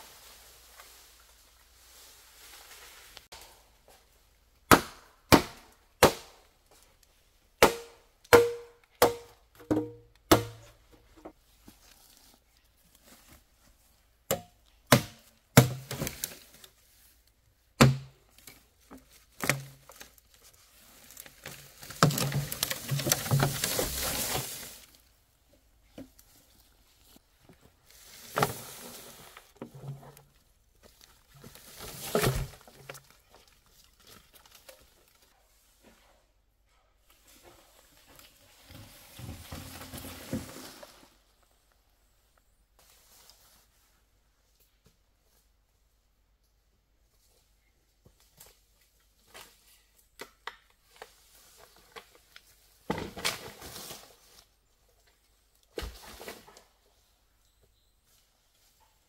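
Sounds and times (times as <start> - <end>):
rustling: 0.0 - 4.0, 18.4 - 25.2
chopping on wood: 4.7 - 6.4, 7.6 - 10.6, 14.3 - 16.0, 17.8 - 18.1.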